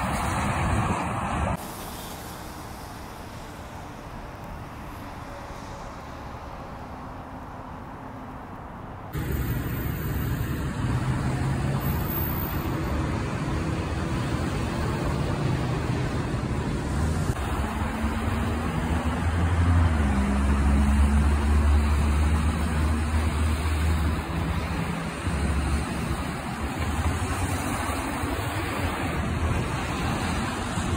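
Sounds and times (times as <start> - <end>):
tyre hiss on wet road: 0.0 - 7.0
passing vehicles: 0.0 - 30.9
truck diesel engine drone: 0.0 - 30.9.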